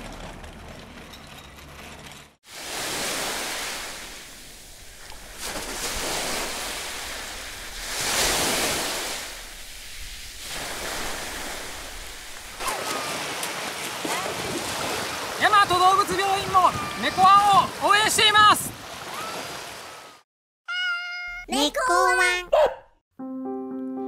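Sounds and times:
small sea waves washing onto beach: 0:02.4 - 0:20.2.

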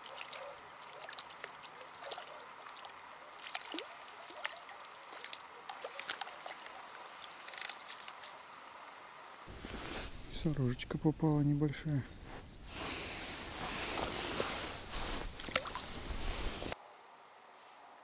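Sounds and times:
light splashes on water: 0:00.0 - 0:08.4, 0:14.9 - 0:16.5.

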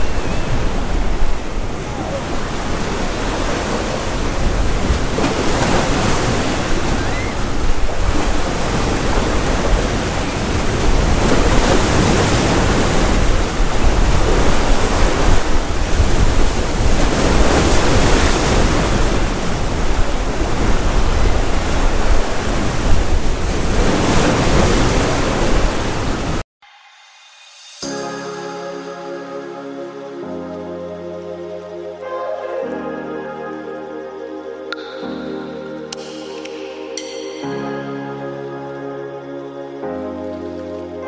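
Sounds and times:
sea waves breaking on concrete: 0:00.0 - 0:26.4
wind buffeting microphone: 0:00.0 - 0:26.4.

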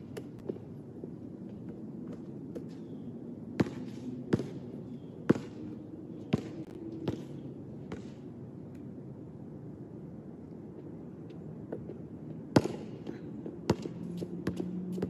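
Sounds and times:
basketball bouncing on hard court: 0:05.3 - 0:05.6, 0:13.7 - 0:14.6.

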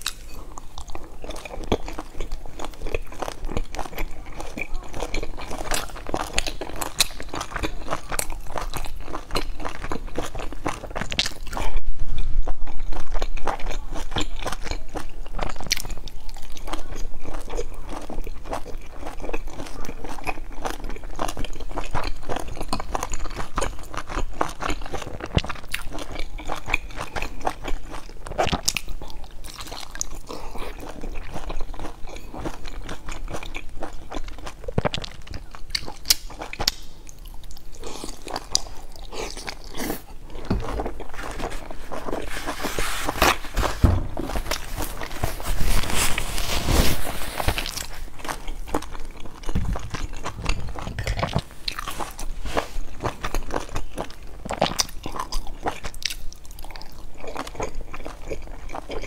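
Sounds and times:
chewing and crunching: 0:00.0 - 0:59.0
wet mouth sounds: 0:47.6 - 0:56.3
muffled rumble: 0:49.5 - 0:52.0.

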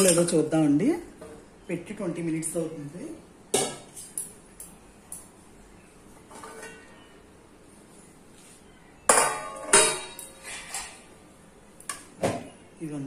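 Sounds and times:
metal lid clanking on pot: 0:09.1 - 0:10.9.

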